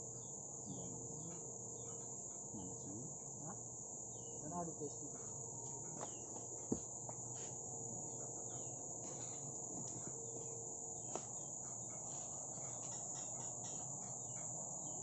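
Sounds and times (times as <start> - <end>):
faint bird chirps: 0.0 - 6.4, 10.2 - 15.0
insects shrilling: 0.0 - 15.0.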